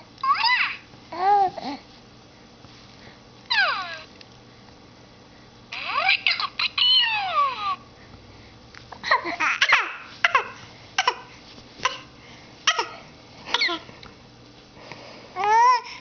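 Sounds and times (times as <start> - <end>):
baby squealing and cooing: 3.5 - 4.1, 5.7 - 7.8, 9.2 - 11.2.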